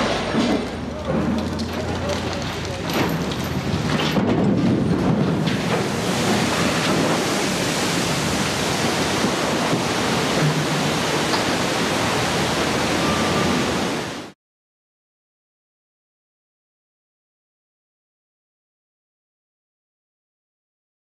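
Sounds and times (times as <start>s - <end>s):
rushing churning water: 0.8s - 14.4s.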